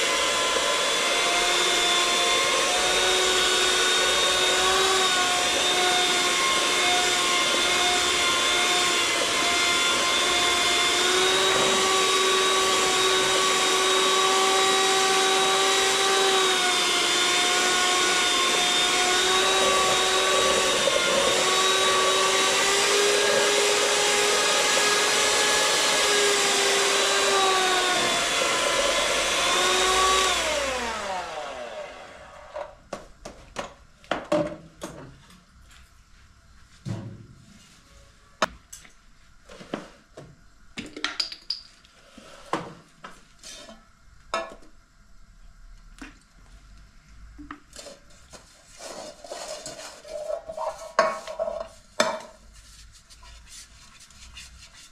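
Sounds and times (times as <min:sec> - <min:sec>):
electric hand mixer whining: 0:00.0 - 0:32.7.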